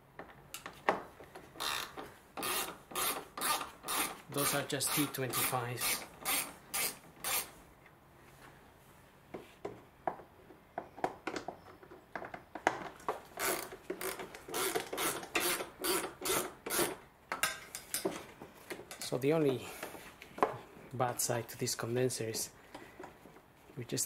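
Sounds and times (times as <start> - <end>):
screwdriver scratching strokes: 1.6 - 7.5.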